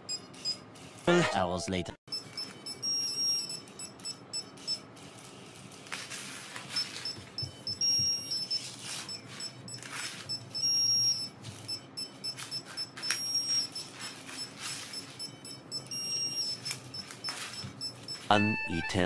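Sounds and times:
short high-pitched beeps: 2.1 - 4.8, 6.7 - 19.0.

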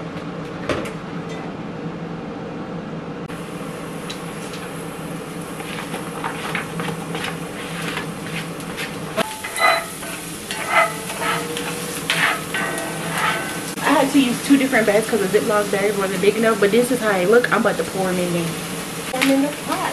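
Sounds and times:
oil sizzling in a skillet: 3.4 - 19.9
spatula scraping a pan: 5.6 - 14.1
onion scraped off a plate: 8.8 - 13.7.

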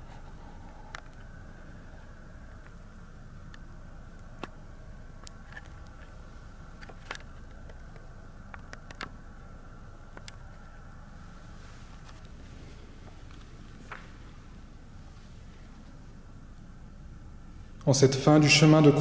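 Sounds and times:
steady low hum: 0.0 - 19.0
faint scattered clicks: 6.8 - 9.2, 10.1 - 10.8.

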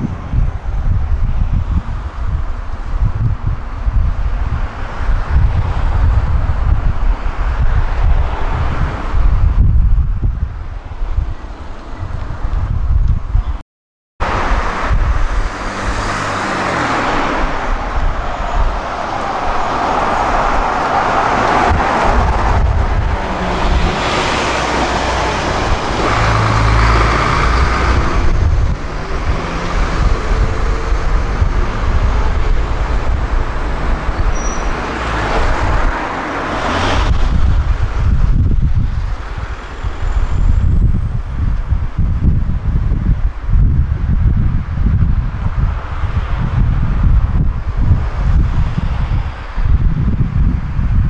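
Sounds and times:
wind rumble on microphone: 0.0 - 13.6, 14.2 - 51.0
bus driving past: 14.2 - 38.1.

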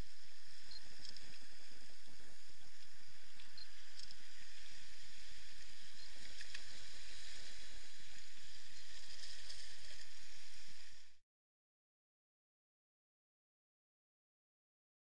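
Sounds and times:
sea waves washing against rocks: 0.0 - 11.0.

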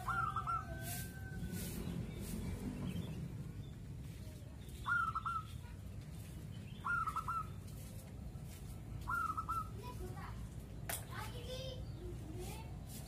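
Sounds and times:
dove cooing: 0.0 - 0.8, 9.1 - 9.8.

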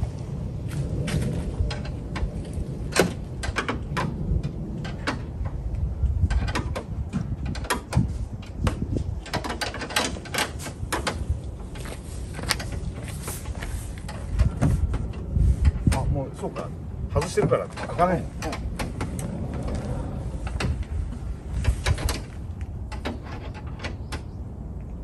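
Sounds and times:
low rumble: 0.0 - 9.4, 10.1 - 23.0.

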